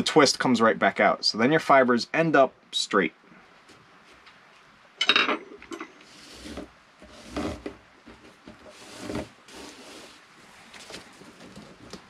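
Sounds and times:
line rubbing and rustling on wood: 6.0 - 12.0.

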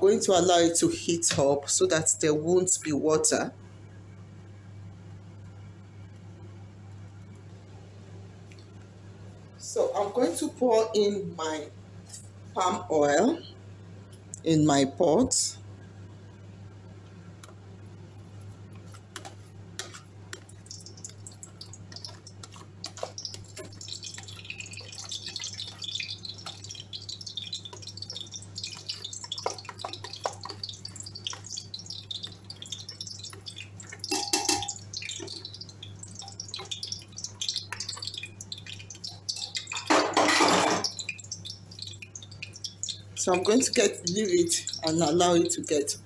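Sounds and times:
steady low hum: 3.3 - 46.0
oil crackling and sizzling: 18.0 - 46.0
spoon scraping bowl: 18.8 - 35.6.

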